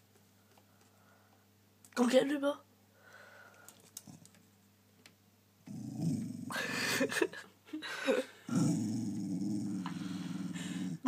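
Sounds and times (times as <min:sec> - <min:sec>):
dog growling: 0:05.6 - 0:06.8, 0:08.5 - 0:11.0.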